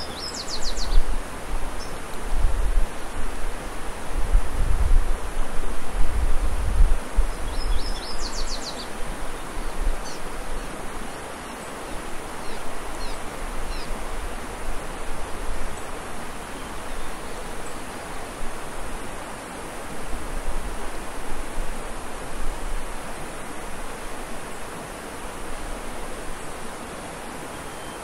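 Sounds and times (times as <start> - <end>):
wind buffeting microphone: 0.0 - 11.1
mountain stream rushing: 0.0 - 28.0.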